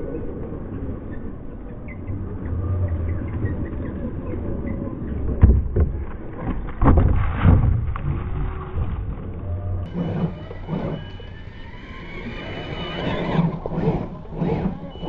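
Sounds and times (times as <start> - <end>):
low rumble: 0.0 - 15.0
toy car tyres spinning in sand: 7.2 - 15.0.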